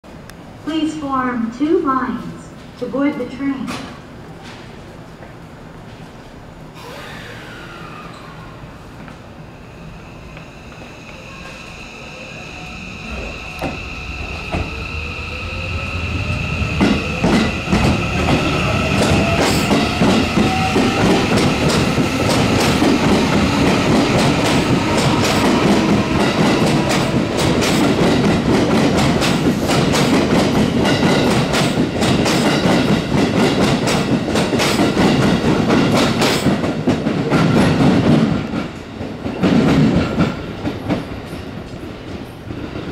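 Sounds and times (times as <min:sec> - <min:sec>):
train rumble: 0:03.7 - 0:42.9
electric train motors whining: 0:06.8 - 0:27.8.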